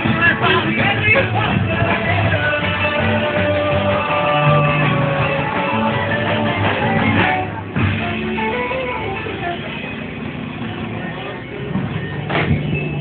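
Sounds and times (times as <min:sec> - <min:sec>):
person singing: 0:00.0 - 0:07.6
guitar: 0:00.0 - 0:13.0
rock and roll music: 0:00.0 - 0:13.0.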